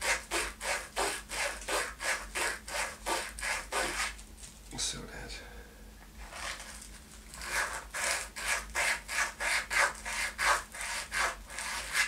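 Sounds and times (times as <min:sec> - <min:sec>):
sandpaper scraping wood: 0:00.0 - 0:04.2, 0:07.4 - 0:12.0.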